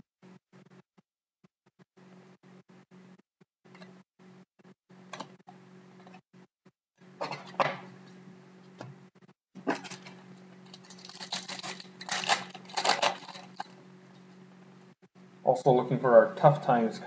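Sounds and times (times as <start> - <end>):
foil card pack crinkling and tearing: 9.7 - 13.8.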